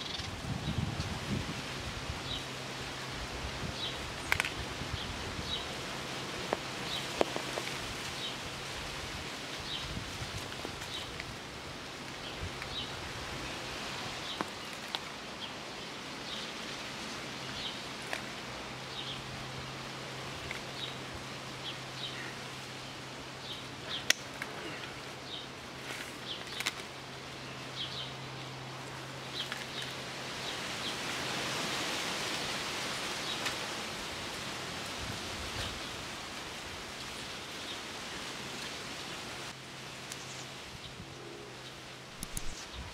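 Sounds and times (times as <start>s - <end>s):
small birds chirping: 0.0s - 0.8s, 3.8s - 8.8s, 12.1s - 13.3s, 14.1s - 31.1s, 40.0s - 42.9s
steady background hiss: 0.0s - 42.9s.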